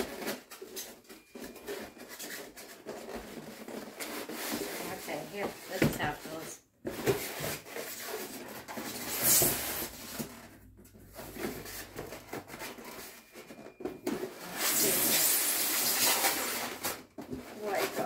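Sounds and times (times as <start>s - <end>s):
cardboard rustling: 0.0s - 18.0s
cardboard tray scraping out of box: 1.2s - 10.2s, 14.1s - 18.0s.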